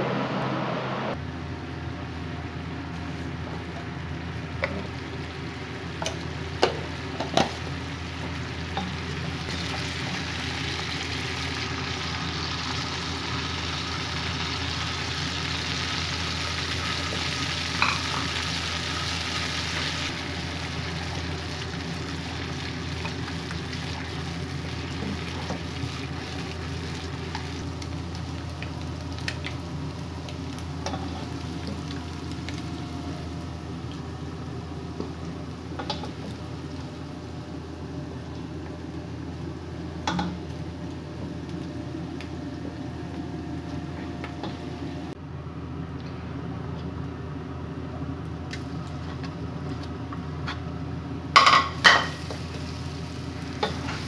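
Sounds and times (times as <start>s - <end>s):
egg sizzling in oil: 5.1s - 33.2s.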